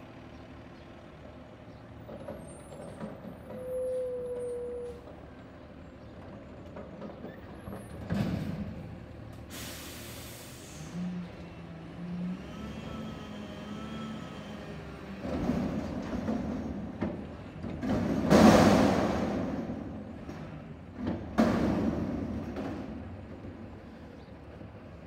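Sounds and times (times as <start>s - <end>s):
garbage truck engine: 0.0s - 25.0s
compressed air hiss: 9.5s - 11.0s
loud metal clunk: 15.2s - 23.1s.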